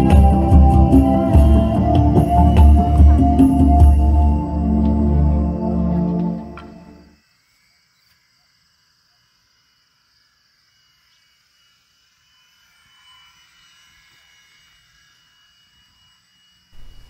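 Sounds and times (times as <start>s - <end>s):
propeller plane engine drone: 0.0s - 7.2s, 15.4s - 17.0s.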